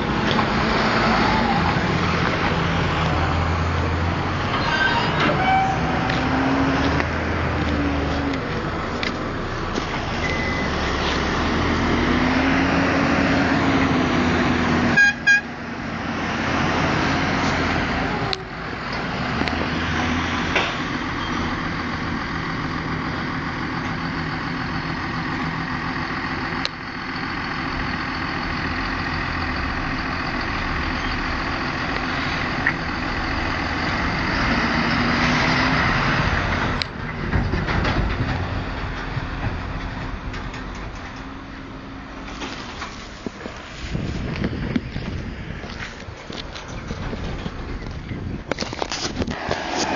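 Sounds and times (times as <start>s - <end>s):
tractor diesel engine working hard: 0.0s - 49.9s
short horn toots: 15.0s - 15.5s.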